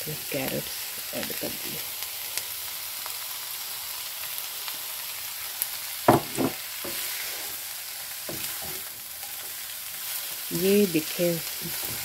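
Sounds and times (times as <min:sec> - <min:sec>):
vegetables sizzling in a wok: 0:00.0 - 0:12.0
wooden spatula knocking a pan: 0:06.1 - 0:07.0.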